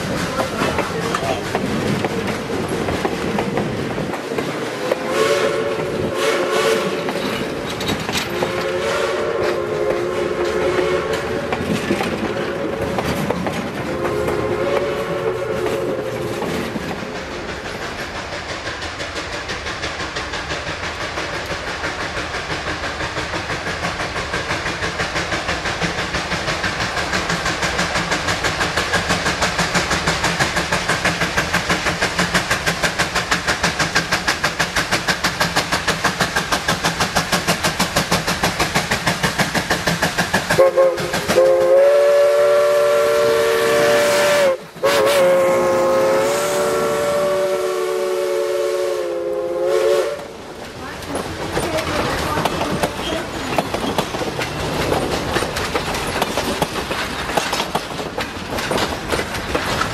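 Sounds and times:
passenger cars rumbling and clattering: 0.0s - 6.2s, 6.8s - 41.7s, 50.2s - 59.9s
steam locomotive chuffing: 0.0s - 59.9s
train whistle chord: 4.8s - 7.0s, 8.3s - 11.5s, 13.9s - 16.3s, 40.6s - 50.4s.

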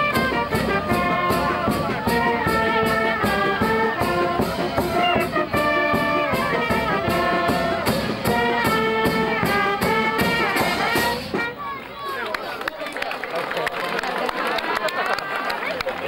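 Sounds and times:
brass band playing: 0.0s - 11.8s.

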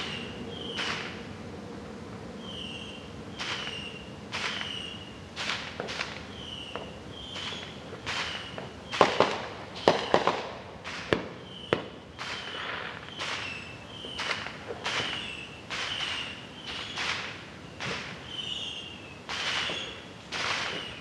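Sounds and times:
fireworks bangs and crackles: 4.4s - 21.0s.

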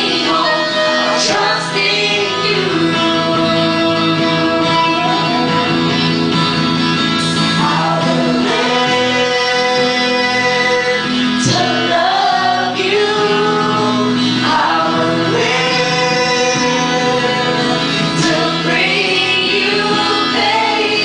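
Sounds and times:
woman singing: 0.0s - 6.1s, 7.4s - 21.0s
live band playing: 0.0s - 21.0s
man singing: 7.4s - 21.0s.

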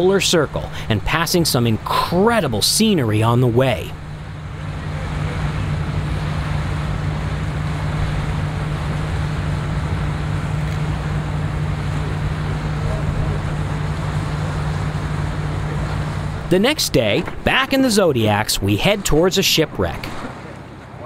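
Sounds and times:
ship engine droning: 0.0s - 21.0s
wind and water rushing: 0.0s - 21.0s.

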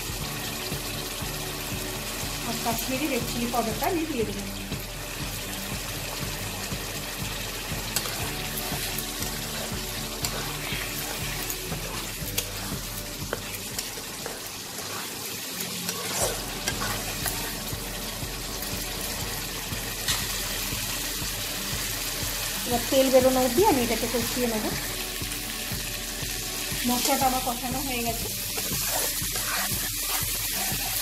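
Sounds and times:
food sizzling in hot oil: 0.0s - 31.0s
spatula scraping and tapping pan: 7.8s - 17.6s, 28.2s - 31.0s.

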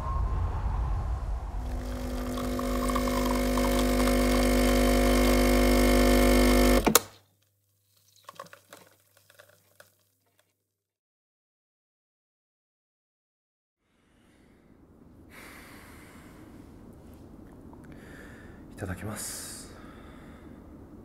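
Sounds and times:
electric appliance hum: 1.6s - 7.1s.

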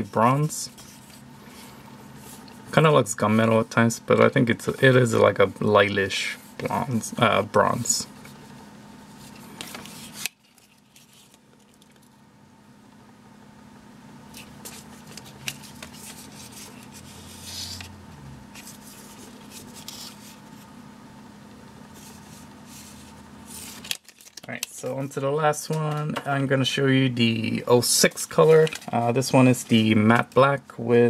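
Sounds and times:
faint hum: 0.0s - 31.0s
sunglasses handling rustle: 9.1s - 12.1s, 14.3s - 17.9s, 22.0s - 24.5s.

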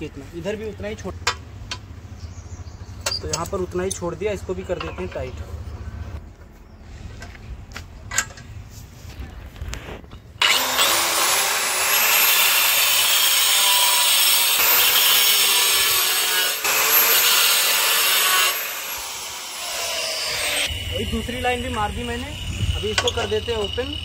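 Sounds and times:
angle grinder cutting stone: 10.4s - 24.0s.

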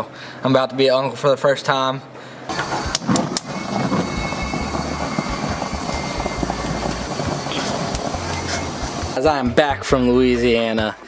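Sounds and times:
gas burner rushing: 2.5s - 9.3s
low rumbles: 2.6s - 9.6s.

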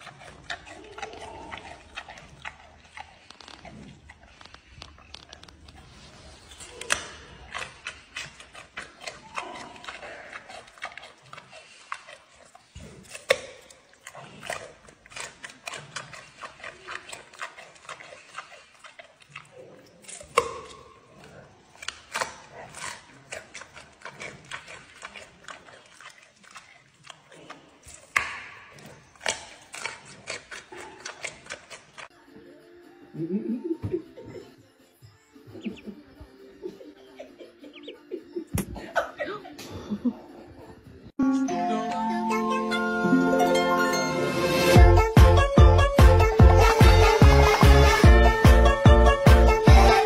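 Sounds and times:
panda crunching carrot bites: 0.0s - 32.1s
rapid crunching chews: 0.0s - 32.2s.

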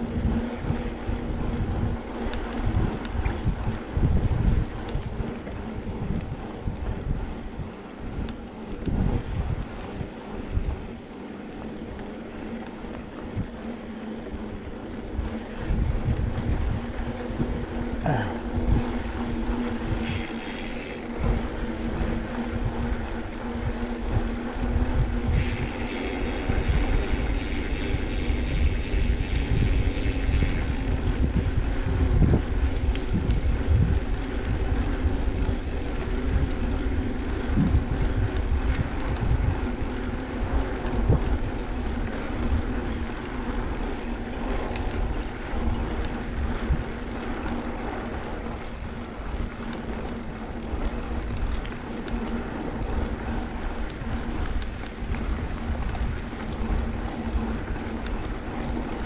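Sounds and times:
wind buffeting microphone: 0.0s - 59.0s
small motor whining: 18.9s - 31.0s
hissing rattly noise: 20.0s - 21.2s, 25.2s - 31.0s.

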